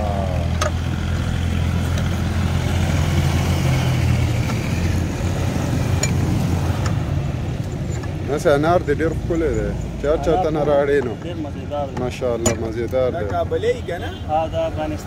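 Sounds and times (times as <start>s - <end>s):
engine droning: 0.0s - 13.9s.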